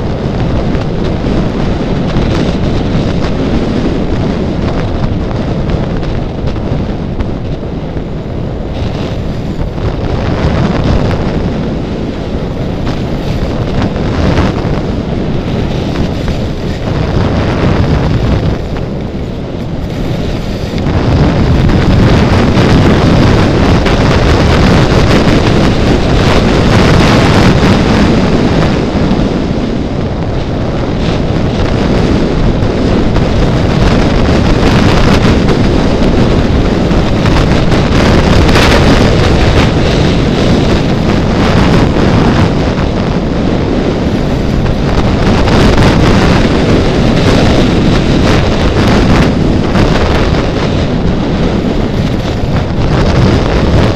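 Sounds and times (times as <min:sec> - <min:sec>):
wind buffeting microphone: 0:00.0 - 0:53.9
skis scraping on packed snow: 0:08.7 - 0:28.3.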